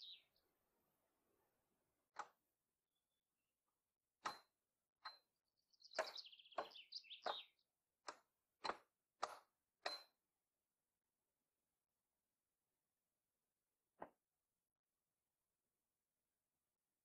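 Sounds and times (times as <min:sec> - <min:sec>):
small bird singing: 0:00.0 - 0:00.5, 0:04.2 - 0:08.2
axe chopping wooden board: 0:04.2 - 0:04.6, 0:06.0 - 0:10.1.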